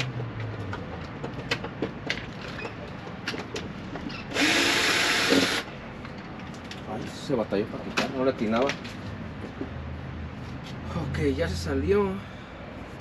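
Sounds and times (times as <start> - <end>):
loud whirring: 4.3 - 5.7.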